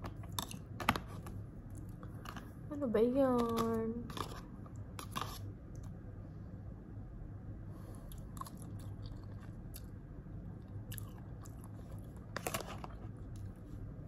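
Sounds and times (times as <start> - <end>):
steady low hum: 0.0 - 14.0
chewing noodles: 8.0 - 10.0, 10.6 - 13.6.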